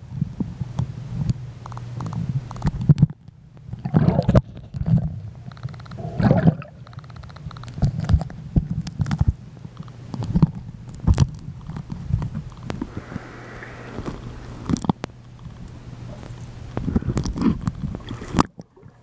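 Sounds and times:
muffled underwater sloshing: 0:03.7 - 0:19.0
water splashing: 0:06.0 - 0:07.6, 0:12.8 - 0:19.0
low hum: 0:12.1 - 0:19.0.

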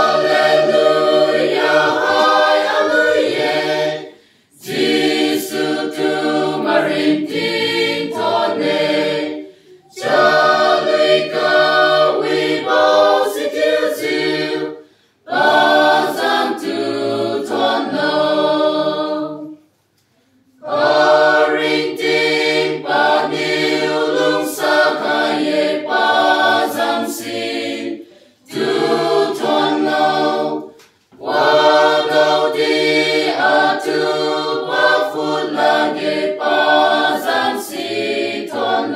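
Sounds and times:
mixed choir singing a cappella: 0:00.0 - 0:19.8, 0:20.5 - 0:38.9.

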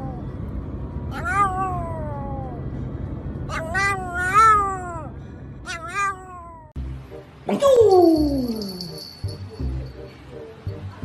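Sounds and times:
car rumble: 0:00.0 - 0:05.7.

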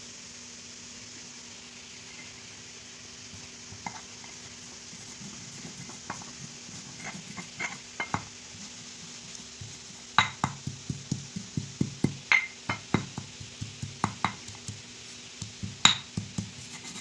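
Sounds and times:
faint hiss and hum: 0:00.0 - 0:17.0
pestle knocking in stone mortar: 0:07.0 - 0:08.3, 0:09.6 - 0:17.0.

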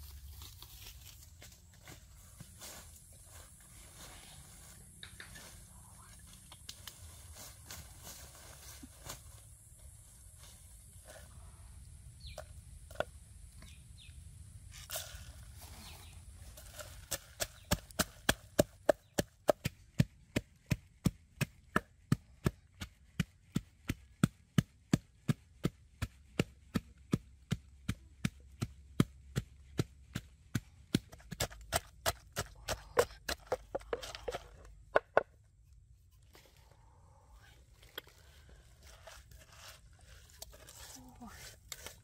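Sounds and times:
pestle pounding in wooden mortar: 0:17.0 - 0:35.3.

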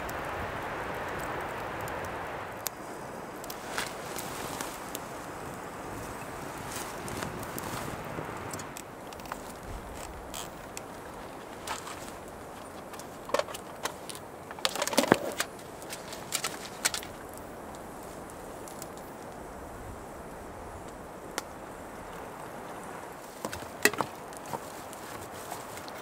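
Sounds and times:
wind through forest: 0:00.0 - 0:26.0
clicks and knocks of camp gear: 0:03.5 - 0:05.1, 0:06.6 - 0:17.4, 0:23.2 - 0:26.0.

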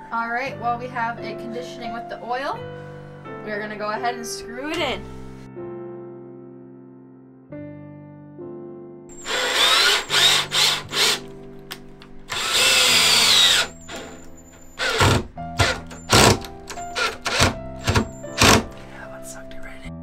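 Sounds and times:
cordless drill driving screws: 0:09.1 - 0:11.3, 0:12.3 - 0:18.8.

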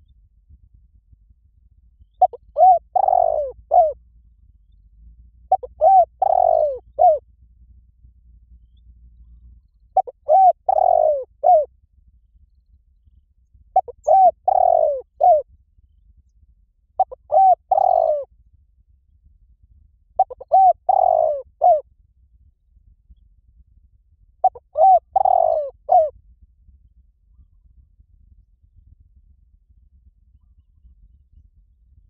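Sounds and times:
dove cooing: 0:02.2 - 0:04.0, 0:05.5 - 0:07.2, 0:10.0 - 0:11.7, 0:13.8 - 0:15.4, 0:17.0 - 0:18.3, 0:20.2 - 0:21.8, 0:24.4 - 0:26.1.

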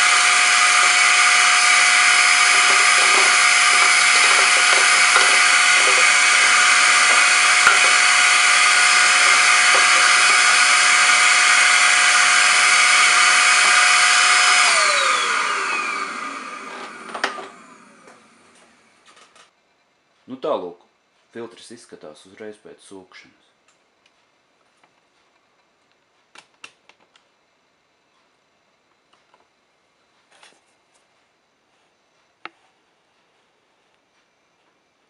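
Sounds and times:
motor spinning down: 0:00.0 - 0:18.4
vacuum cleaner motor whining: 0:00.0 - 0:19.0.

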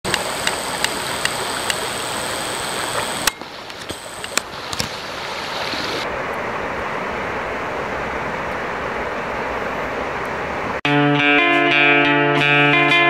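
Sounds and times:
thin high whine: 0:00.1 - 0:06.0
river rushing over rapids: 0:00.1 - 0:10.8.

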